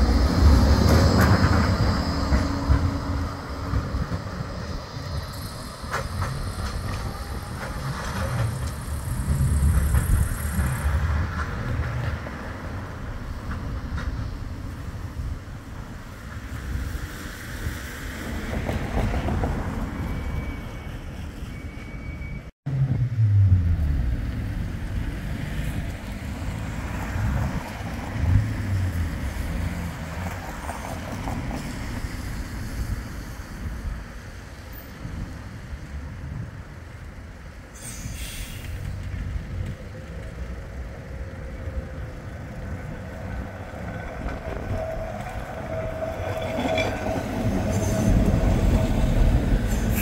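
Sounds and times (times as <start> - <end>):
road traffic passing: 0.0 - 50.0
wind buffeting microphone: 41.3 - 50.0.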